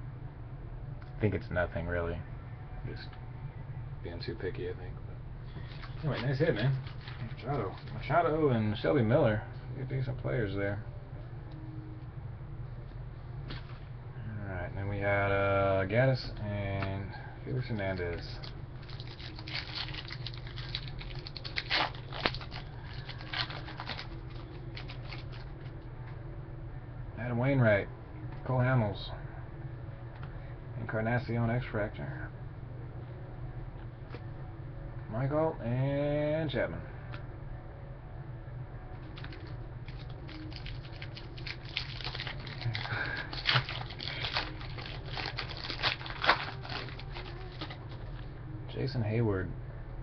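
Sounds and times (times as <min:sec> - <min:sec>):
steady low hum: 0:00.0 - 0:50.0
wrapper rustling: 0:05.6 - 0:08.2, 0:17.7 - 0:25.7, 0:39.1 - 0:48.2.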